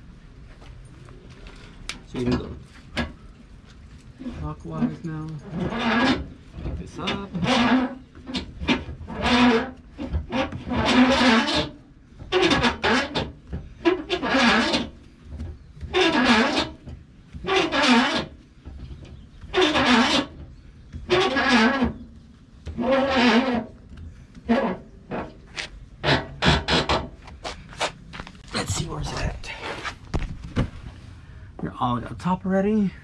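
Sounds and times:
winch crank rasping and grinding: 5.4 - 15.0, 15.8 - 18.4, 19.4 - 22.0, 22.7 - 23.8.

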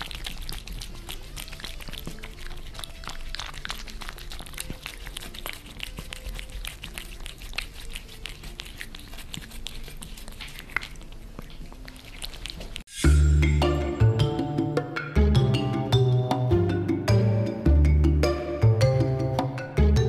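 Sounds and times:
cats licking wet clicks: 0.0 - 12.9.

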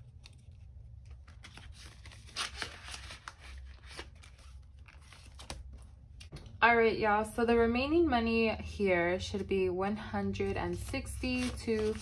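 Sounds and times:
banknotes rustling: 0.0 - 6.0, 10.4 - 12.0.

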